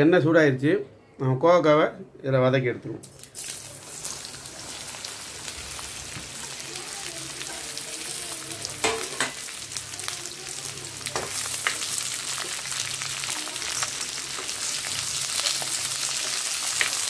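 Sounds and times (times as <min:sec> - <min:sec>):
vegetables sizzling in oil: 0:03.1 - 0:17.0.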